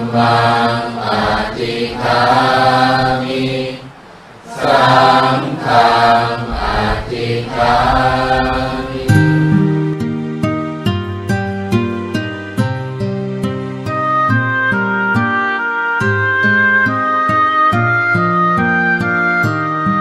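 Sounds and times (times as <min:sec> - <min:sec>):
voices chanting: 0:00.0 - 0:09.4
plucked-string music: 0:08.9 - 0:20.0.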